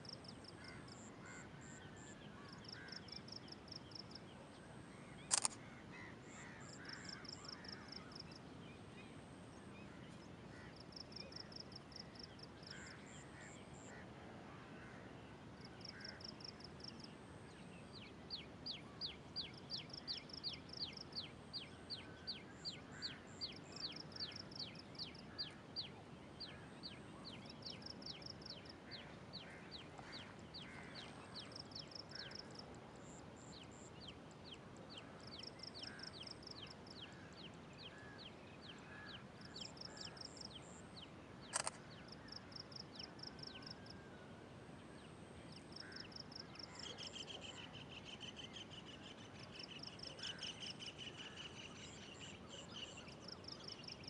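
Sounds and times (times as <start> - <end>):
faint steady hiss: 0.0 - 54.0
sharp click: 5.3 - 5.6, 41.5 - 41.8.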